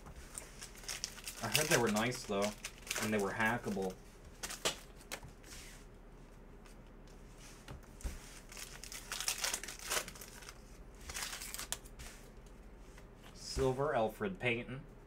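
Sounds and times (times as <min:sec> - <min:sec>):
foil wrapper crinkling and tearing: 0:00.3 - 0:05.2, 0:08.4 - 0:11.9.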